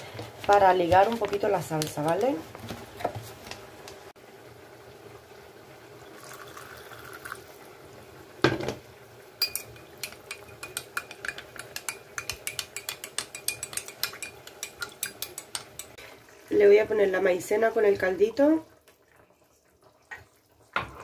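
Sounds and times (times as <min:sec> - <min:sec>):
faint pouring liquid: 0:04.8 - 0:08.1
metal spoon clinking in glass: 0:09.4 - 0:15.9.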